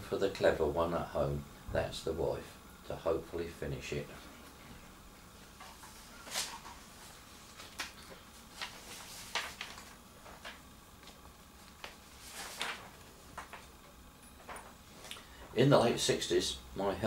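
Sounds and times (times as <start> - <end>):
paper rustling: 5.6 - 13.8.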